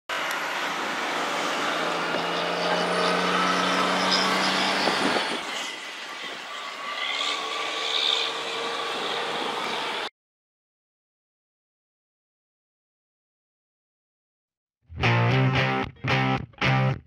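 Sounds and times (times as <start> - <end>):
road noise: 0.1 - 10.1
vehicle engine hum: 0.1 - 10.1.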